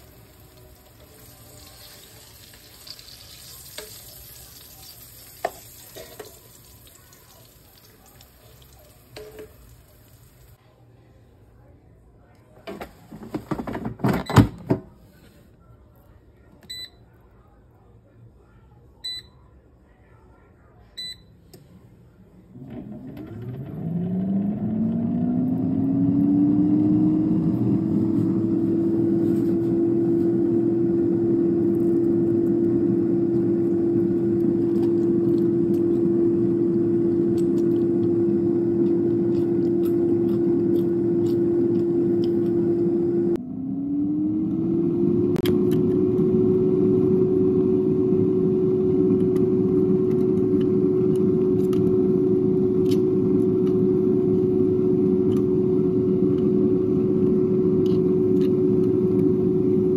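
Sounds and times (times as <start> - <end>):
air fryer fan whine and hum: 0.0 - 10.5, 22.6 - 59.9.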